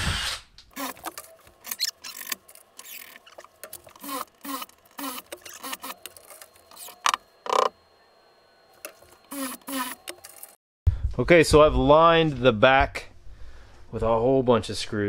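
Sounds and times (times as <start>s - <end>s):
tools scraping and clicking: 0.7s - 7.8s, 8.8s - 10.6s
short power tool buzz: 3.9s - 6.0s, 9.2s - 10.6s.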